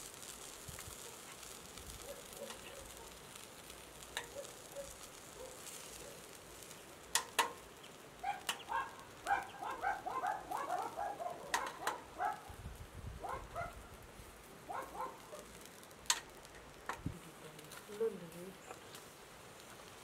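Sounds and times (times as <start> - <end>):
bird calling: 8.2 - 12.0.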